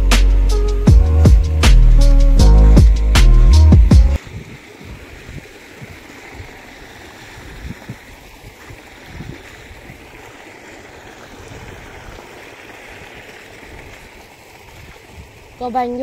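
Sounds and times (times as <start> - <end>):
wind buffeting microphone: 4.1 - 16.0.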